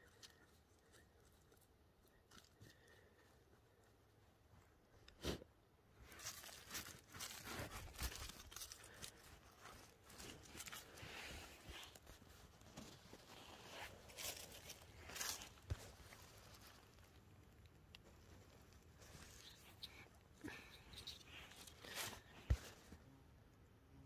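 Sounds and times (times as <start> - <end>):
dry leaves crackling and rustling: 6.1 - 17.2.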